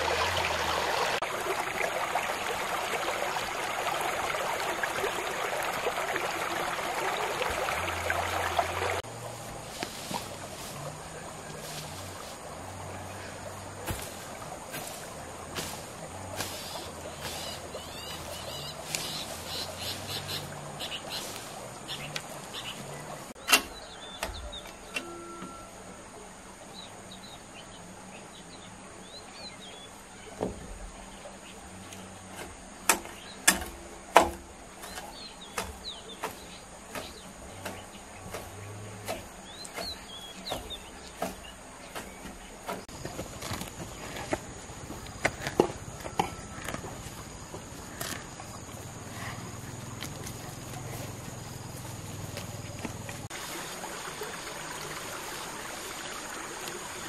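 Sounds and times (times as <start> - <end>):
birds chirping: 0.0 - 57.0
hoe striking the ground: 13.8 - 17.6, 32.4 - 46.9
high insect drone: 42.8 - 57.0.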